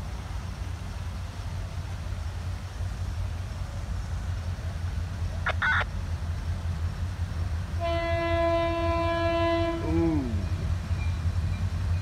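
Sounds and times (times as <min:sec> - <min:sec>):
locomotive air horn blast: 0:07.8 - 0:10.0.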